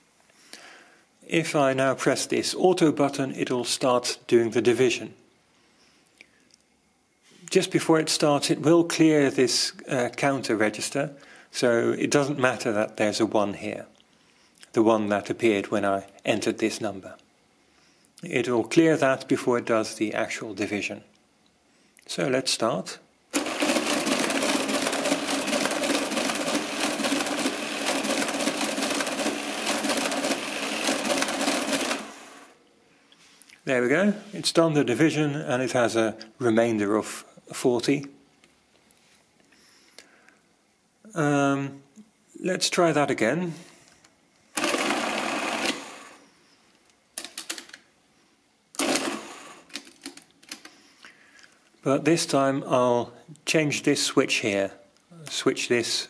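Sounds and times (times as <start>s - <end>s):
mechanical calculator clattering: 23.4s - 32.5s, 44.6s - 45.9s, 48.8s - 50.7s.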